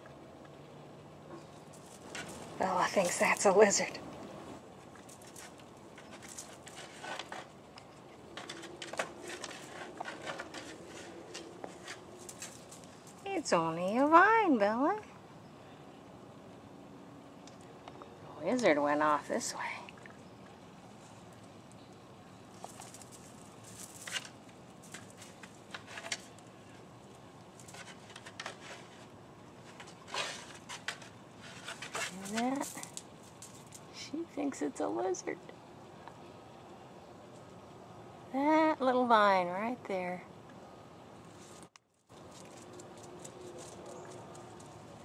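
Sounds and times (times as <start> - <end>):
puppy claws scratching wood: 1.4 - 3.6, 4.8 - 13.3, 22.6 - 33.9, 41.4 - 45.0.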